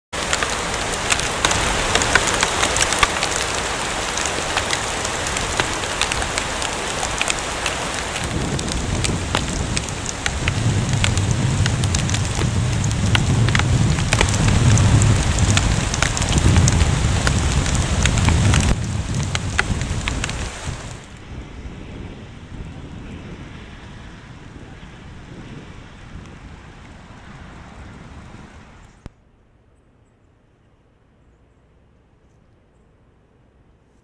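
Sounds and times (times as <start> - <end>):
hailstones striking: 0.2 - 21.1
low rumble: 0.6 - 23.6.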